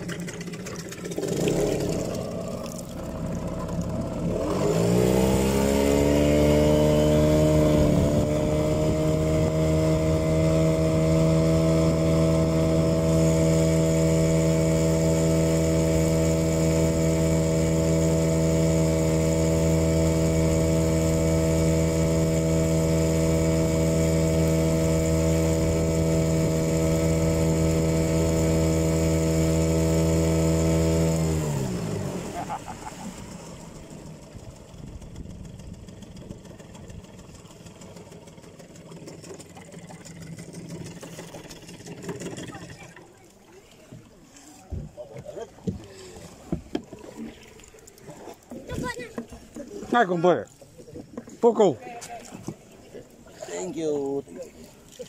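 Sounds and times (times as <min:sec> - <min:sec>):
engine speeding up: 0:00.0 - 0:43.0.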